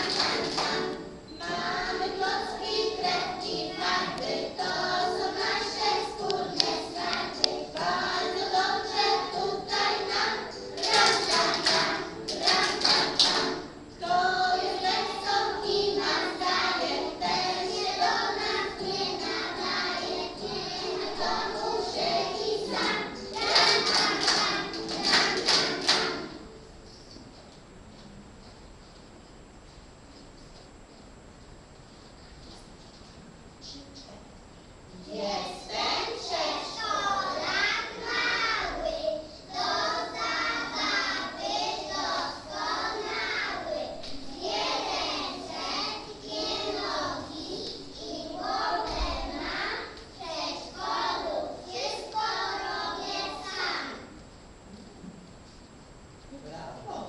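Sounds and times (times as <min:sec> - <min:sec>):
young children singing: 0:00.0 - 0:26.6, 0:35.0 - 0:54.1.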